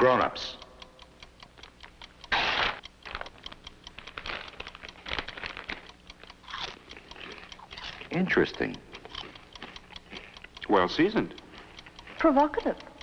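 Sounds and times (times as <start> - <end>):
fast ticking: 0.5 - 13.0
chips crunching: 2.3 - 8.2, 8.9 - 10.6
chip bag crinkling: 2.4 - 8.2.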